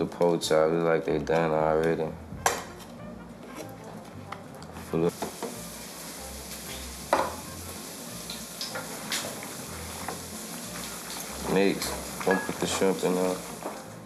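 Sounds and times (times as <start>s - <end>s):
meat sizzling in a pan: 5.1s - 14.0s
spoon knocking on metal pot: 7.1s - 7.4s.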